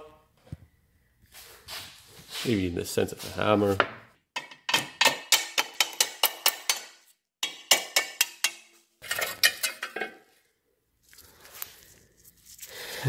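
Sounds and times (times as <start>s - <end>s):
hammer striking metal: 4.4s - 8.8s.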